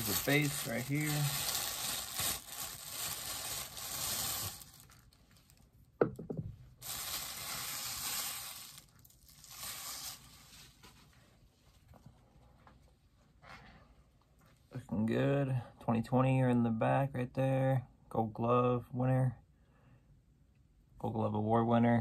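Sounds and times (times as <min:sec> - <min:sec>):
plastic bag crinkling: 0:00.0 - 0:05.8, 0:06.8 - 0:10.9.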